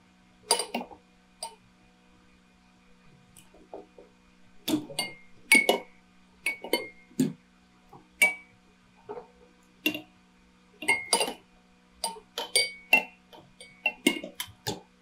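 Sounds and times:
faint steady hum: 0.0 - 15.0
glassy clinks and taps: 4.9 - 7.0, 8.2 - 8.5, 10.8 - 11.4, 12.0 - 14.4.

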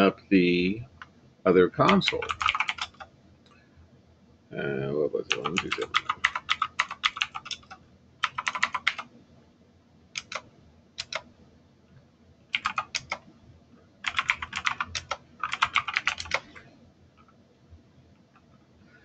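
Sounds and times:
typing on keyboard: 1.9 - 3.1, 5.3 - 9.1, 10.2 - 11.3, 12.5 - 13.2, 14.0 - 16.6.

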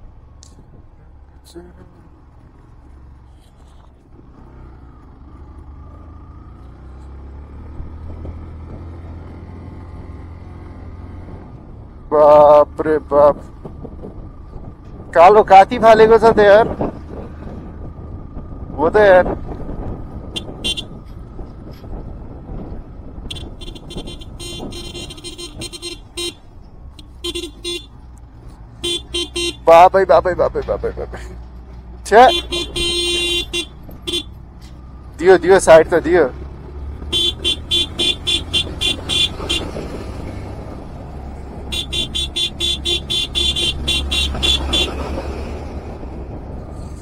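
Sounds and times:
tyres on gravel road: 0.0 - 47.0
vehicle engine rumble: 0.0 - 47.0
vehicle horn short blasts: 20.3 - 21.0, 23.3 - 26.4, 27.0 - 28.0, 28.8 - 29.7, 32.2 - 34.4, 37.1 - 39.8, 41.7 - 45.0.

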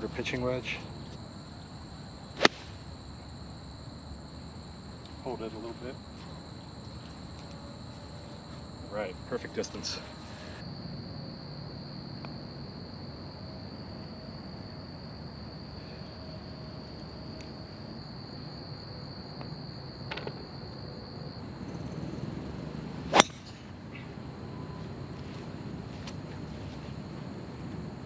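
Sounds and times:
crickets chirring: 0.0 - 28.0
golf club striking ball: 2.4 - 3.0, 23.1 - 23.6.

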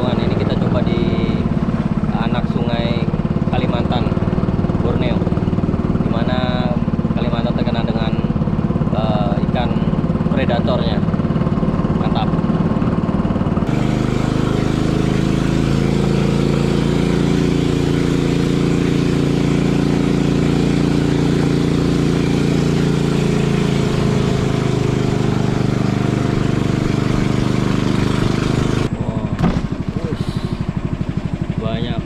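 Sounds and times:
boat engine running: 0.0 - 32.0
water against boat hull: 21.8 - 31.6.

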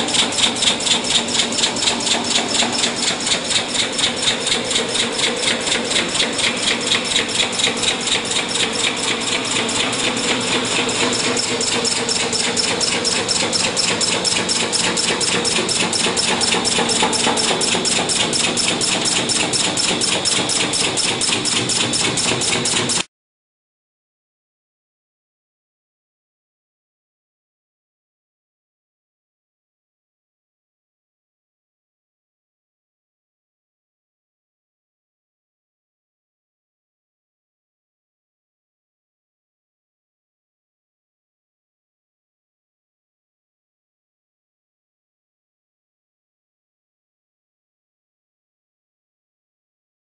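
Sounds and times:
welding machine rapid pulsing: 0.0 - 23.1.

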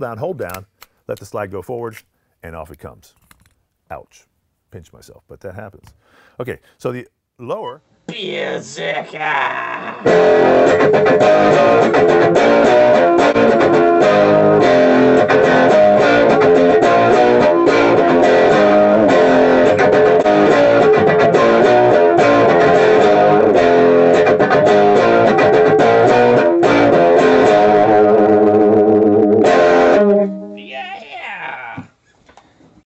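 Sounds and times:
guitar-led background music: 10.0 - 30.7.

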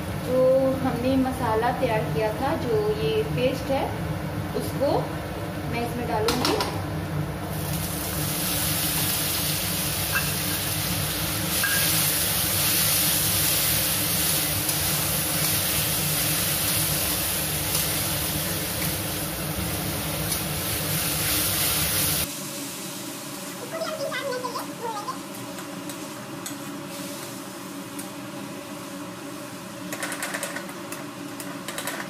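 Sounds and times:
paste sizzling in hot oil: 7.5 - 28.0.

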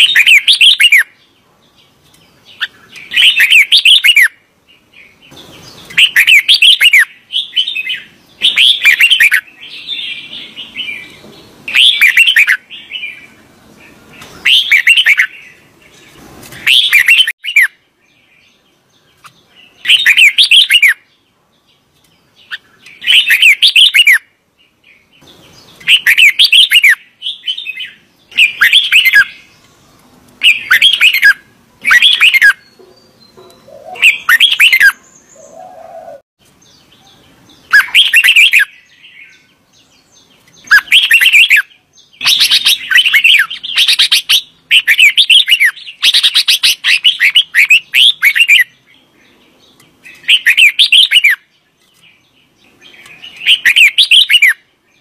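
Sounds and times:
bulbul warbling song: 5.1 - 13.3, 16.6 - 17.8, 25.2 - 29.7, 30.4 - 36.2, 36.9 - 39.4, 40.4 - 48.9, 49.6 - 54.6.

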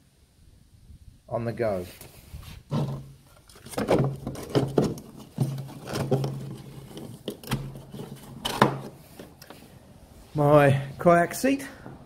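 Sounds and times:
jacket sleeve rustling and scraping: 1.8 - 10.7.

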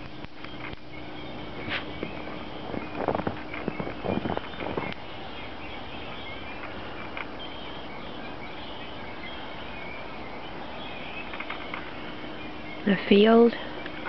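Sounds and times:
birds chirping faintly: 0.0 - 14.0
steady outdoor hiss: 0.0 - 14.0
footsteps in snow: 1.6 - 4.9.

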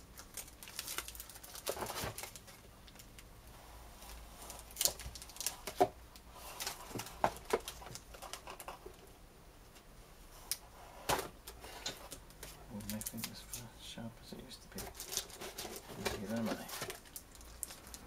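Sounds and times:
plastic bag crinkling: 0.1 - 3.2, 14.7 - 18.0.

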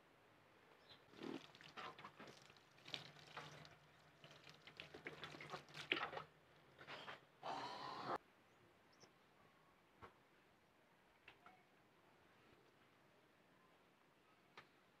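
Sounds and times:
water splashing from hose: 1.1 - 6.3.

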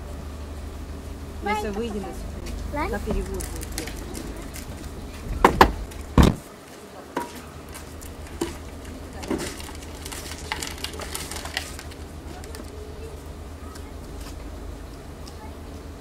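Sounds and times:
car door shutting: 5.2 - 6.5
sharp knocks: 5.3 - 6.5.

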